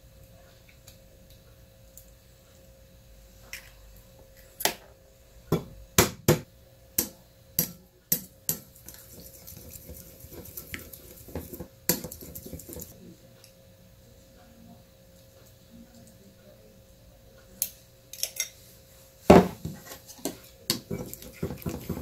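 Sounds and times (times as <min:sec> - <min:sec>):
utensils clinking against cookware: 0:18.2 - 0:18.6.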